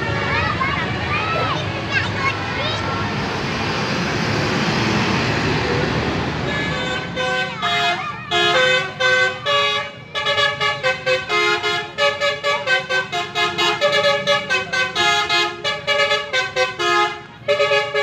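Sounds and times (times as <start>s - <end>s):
multi-tone bus horn tune: 6.4s - 18.0s.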